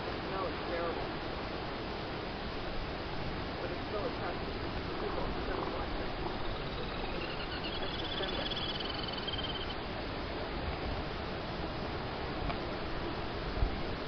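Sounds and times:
wind: 0.0 - 14.0
faint high-pitched trill: 6.1 - 9.8.

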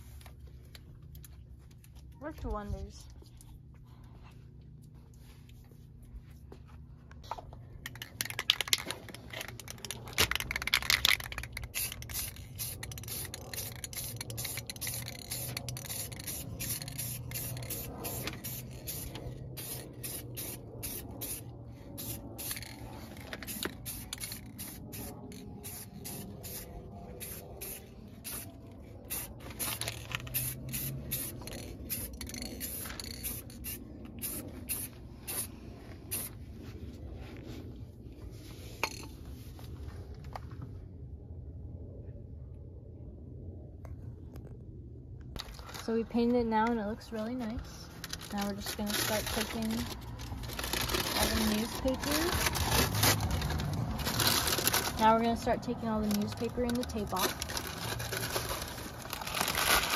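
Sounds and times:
spray can hissing: 11.3 - 21.4, 23.4 - 28.5, 29.1 - 35.5.

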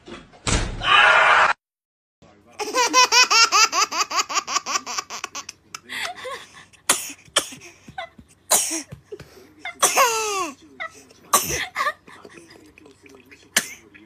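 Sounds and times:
baby laughing: 2.6 - 6.4.

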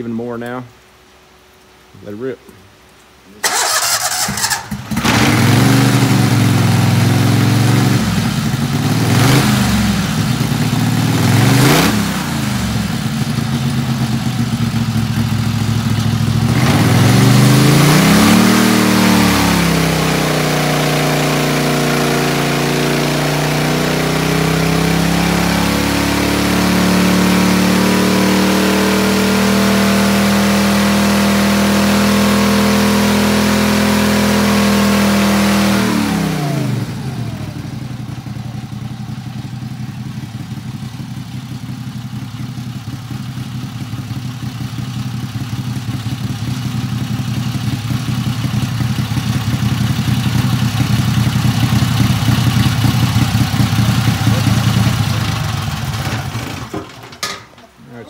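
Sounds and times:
engine at full throttle: 3.4 - 57.0.

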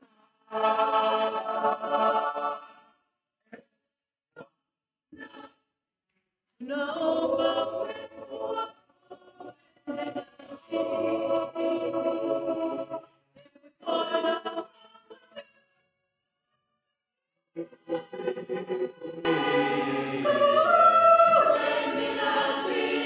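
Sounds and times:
choir singing unaccompanied: 0.5 - 2.8, 6.6 - 13.1, 13.8 - 14.8, 17.6 - 23.0.

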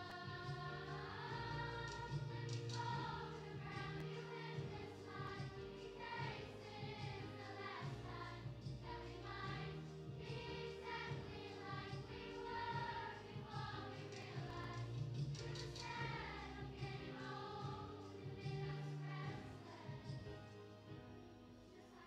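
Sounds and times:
children's choir singing: 0.0 - 20.9, 21.7 - 22.0.

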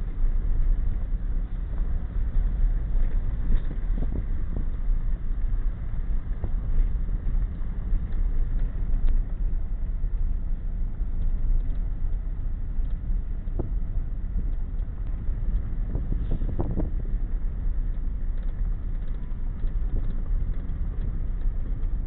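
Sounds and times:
truck driving on dirt road: 0.0 - 22.0.

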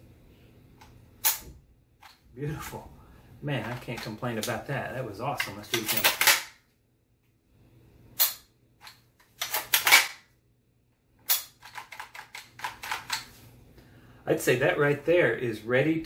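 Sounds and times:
gun parts clacking home: 5.3 - 6.6, 11.3 - 13.3.

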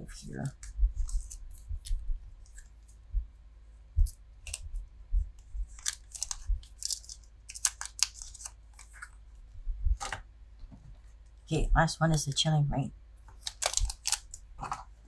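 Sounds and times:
cards sliding and snapping: 5.8 - 9.2, 13.3 - 14.8.

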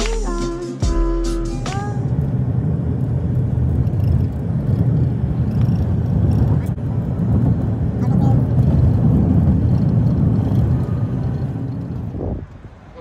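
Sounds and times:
background music: 0.0 - 2.1
car road and engine noise: 0.0 - 13.0.

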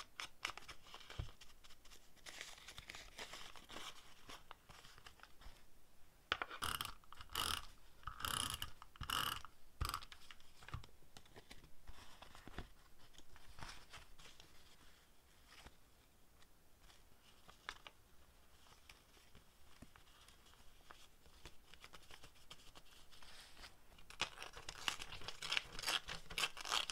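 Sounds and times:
paper rustling: 0.1 - 5.6
paper crinkling and tearing: 2.2 - 5.3, 19.9 - 26.9.

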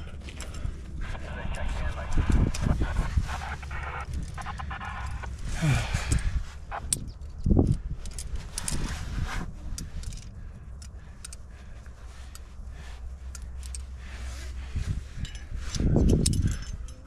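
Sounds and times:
steady low rumble: 0.0 - 17.0
rush of noise: 0.9 - 7.0
sharp metallic ticks: 1.5 - 5.4
climbing gear clinking: 6.9 - 17.0.

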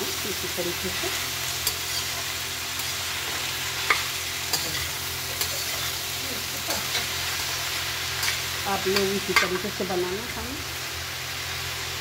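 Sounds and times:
food sizzling in oil: 0.0 - 12.0.

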